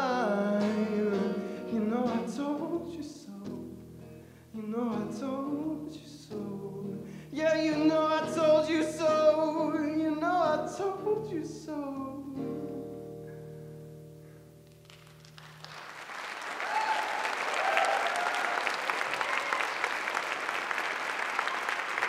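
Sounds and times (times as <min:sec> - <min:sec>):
person singing: 0:00.0 - 0:03.8, 0:04.5 - 0:13.0
audience applauding: 0:14.6 - 0:22.0.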